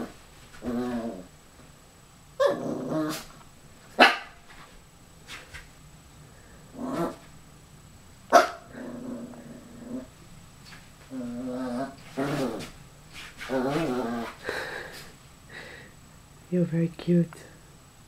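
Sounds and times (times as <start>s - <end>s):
puppy growling: 0.0s - 1.3s, 2.4s - 3.4s, 6.7s - 7.3s, 8.4s - 10.2s, 11.0s - 12.8s, 13.4s - 15.1s
puppy barking: 4.0s - 4.4s, 8.3s - 8.7s.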